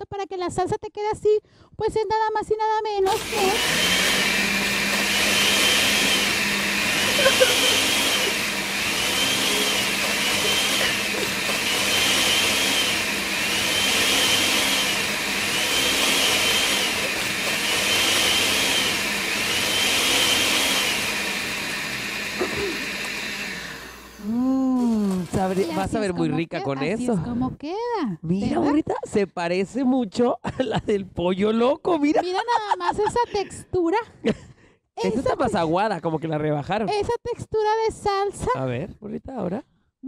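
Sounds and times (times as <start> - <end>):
blender motor whine: 3.0 - 26.2.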